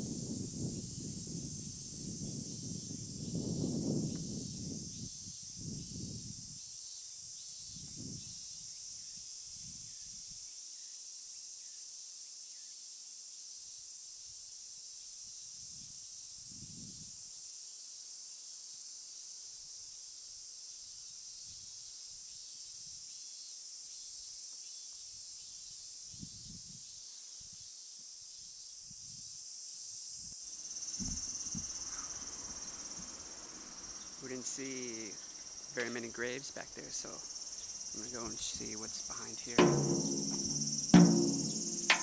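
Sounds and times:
cicadas chorus: 0.0 - 42.0
soft low thumps: 39.6 - 42.0.

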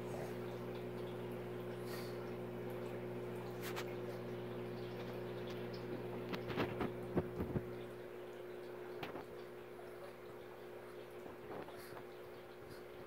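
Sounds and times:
faint watery hiss: 0.0 - 5.3
aquarium filter humming: 0.0 - 13.0.

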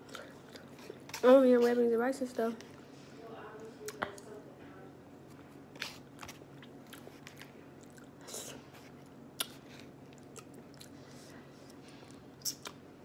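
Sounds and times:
chewing and lip smacking: 5.8 - 12.8.

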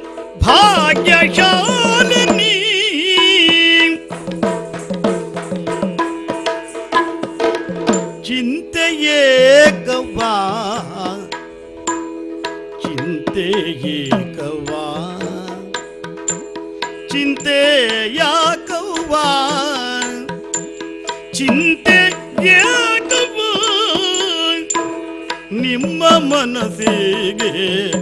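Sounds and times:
quick drum strokes: 0.0 - 8.4
person singing wavering phrases: 0.4 - 4.2, 8.3 - 11.3, 12.8 - 15.8, 21.4 - 24.8, 25.5 - 28.0.

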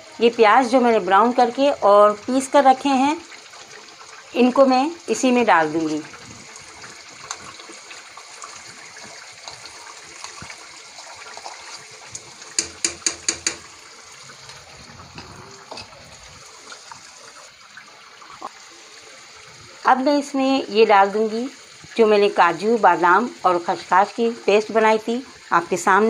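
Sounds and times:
food sizzling in frying pan: 0.0 - 26.0
spoon tapping: 12.6 - 13.7.

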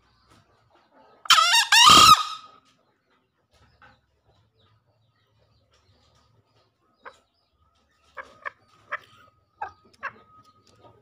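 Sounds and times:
junglefowl calls: 1.2 - 2.6.

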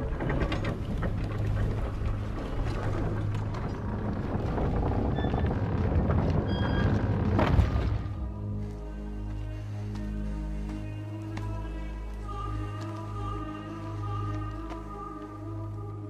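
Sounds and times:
rushing crackly noise: 0.0 - 8.5
low rumble: 0.0 - 16.0.

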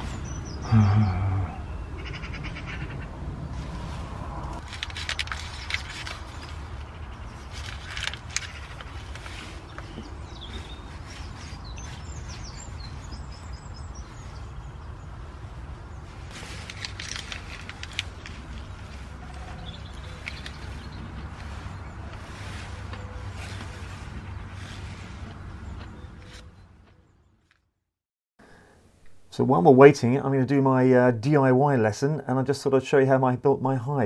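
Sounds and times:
crows cawing: 0.6 - 3.2.

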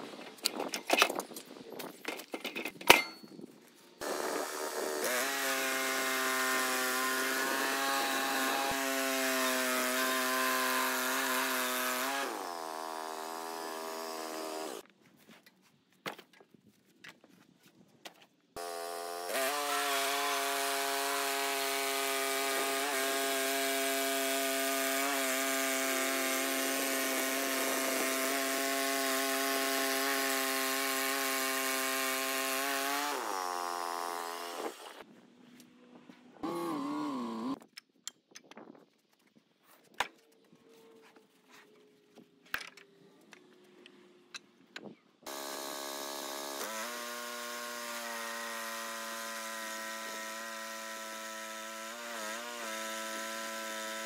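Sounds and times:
band blade sawing log: 4.0 - 14.8, 18.6 - 35.0, 45.3 - 54.0
bandsaw mill engine running: 45.3 - 54.0.

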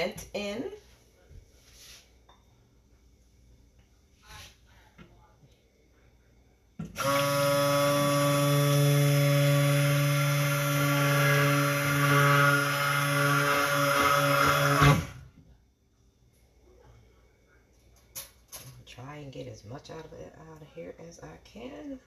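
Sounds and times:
stick blender running: 6.8 - 15.2.

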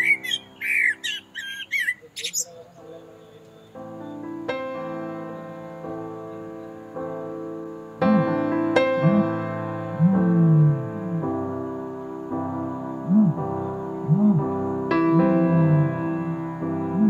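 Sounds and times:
soft piano music: 0.0 - 17.0
low pitch-bending sounds: 8.0 - 11.8, 12.8 - 17.0.

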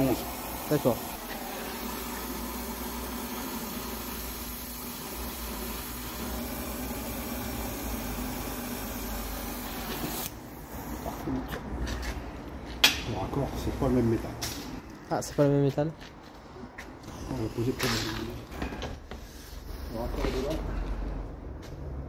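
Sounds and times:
torch flame hissing: 0.0 - 11.4.

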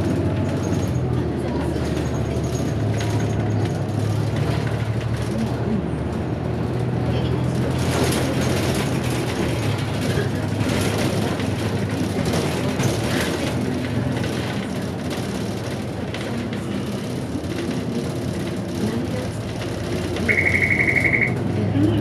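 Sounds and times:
bus engine and road noise: 0.0 - 22.0
pulsing electronic beep: 20.3 - 21.4.

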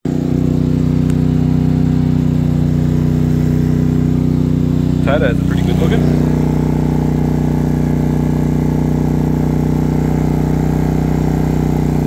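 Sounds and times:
generator engine running: 0.0 - 12.0.

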